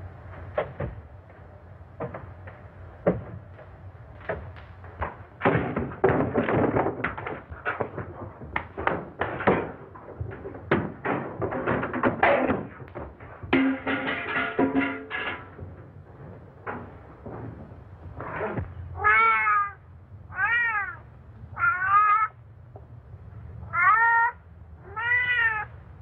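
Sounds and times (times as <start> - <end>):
thumps and bangs against furniture: 0.3 - 1.4, 2.0 - 18.8.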